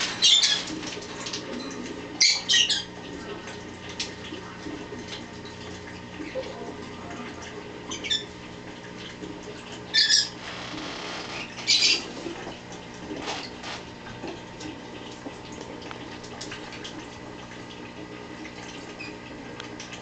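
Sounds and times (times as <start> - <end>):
parrot chirp: 7.9 - 8.3, 9.9 - 10.4, 11.4 - 12.0
parrot squawks: 9.9 - 10.4, 11.2 - 12.1.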